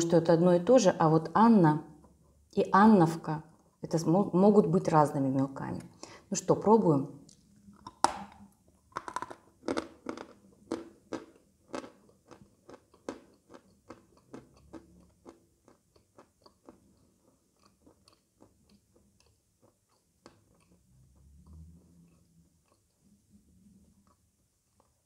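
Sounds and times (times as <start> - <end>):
chalk crunching when chewed: 8.9 - 25.0.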